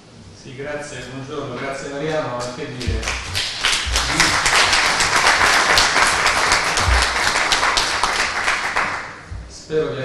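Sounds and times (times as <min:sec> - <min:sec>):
audience applauding: 0:02.8 - 0:09.3.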